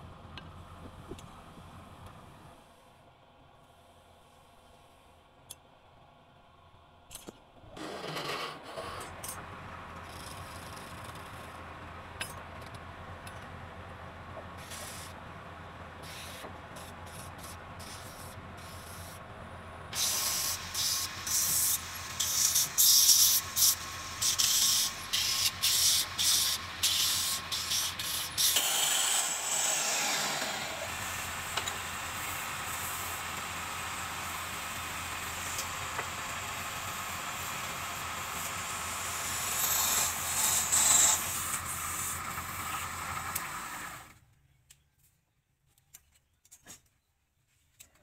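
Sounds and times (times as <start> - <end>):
wood lathe motor humming: 20.0 - 44.1.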